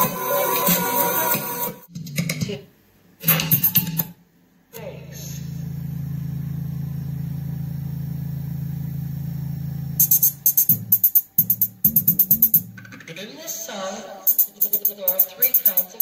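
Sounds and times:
deep bass tone: 5.0 - 13.0
fast beat over bass notes: 10.0 - 13.1.

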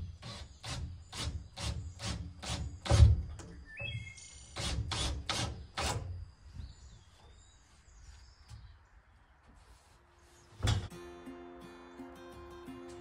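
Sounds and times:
birds chirping: 0.1 - 4.7.

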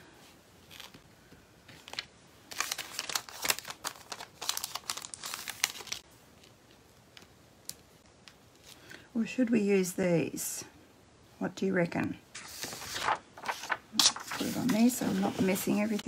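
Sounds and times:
packet crinkling: 1.7 - 8.8, 12.4 - 14.6.

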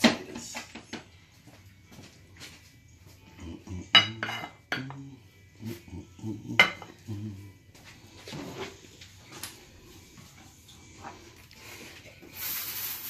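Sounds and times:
ceramic dishes clinking on steel: 3.8 - 5.0, 6.6 - 7.0.

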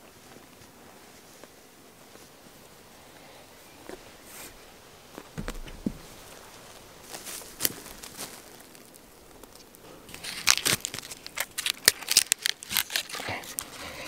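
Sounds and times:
tarp fabric rustling and crinkling: 3.8 - 14.0.

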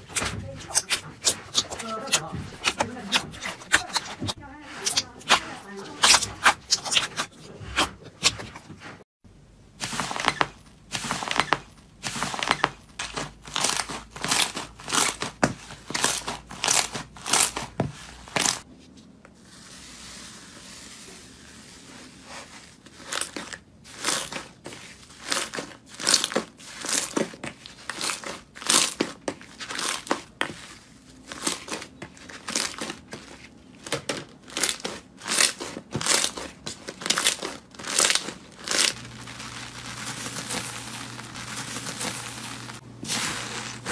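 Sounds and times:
slime popping and crackling: 34.0 - 43.9.

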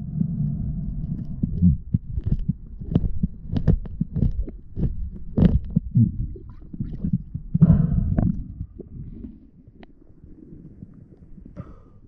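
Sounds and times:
muffled underwater thumps: 1.4 - 10.0.

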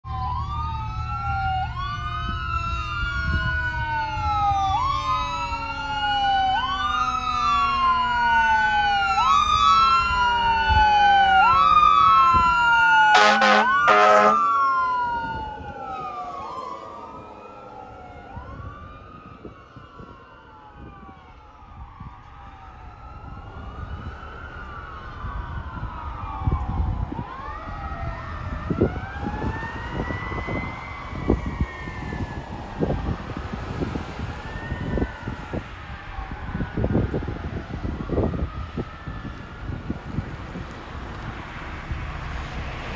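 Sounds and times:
fire engine siren: 0.0 - 42.9
horn blasts: 13.1 - 14.5.

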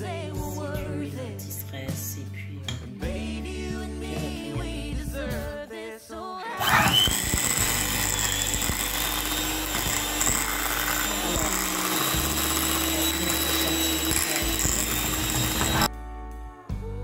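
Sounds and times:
background music: 0.0 - 17.0
handheld electric whisk running: 6.6 - 15.9.

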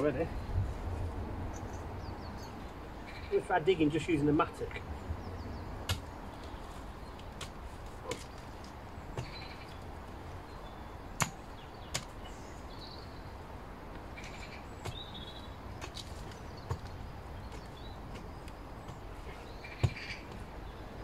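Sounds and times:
mattock chopping into soil: 5.8 - 9.8, 11.2 - 12.2, 14.2 - 20.5.

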